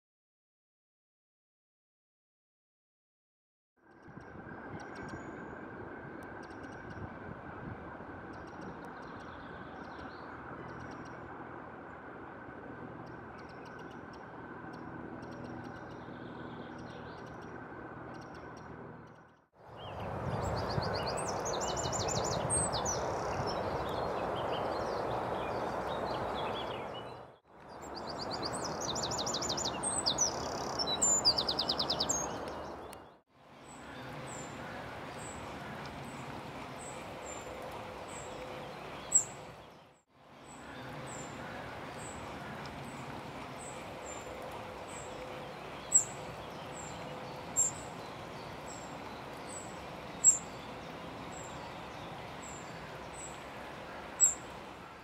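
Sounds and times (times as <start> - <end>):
wren singing trills: 19.7 - 35.2, 44.9 - 53.4, 54.2 - 54.4
steady background hiss: 40.3 - 55.0.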